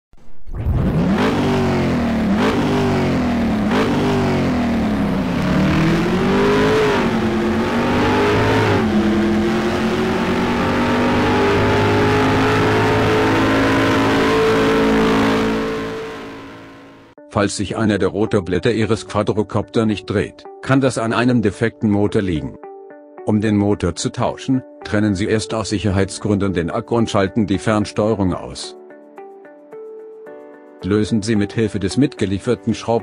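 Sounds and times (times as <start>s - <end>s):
race car engine accelerating: 0.5s - 17.2s.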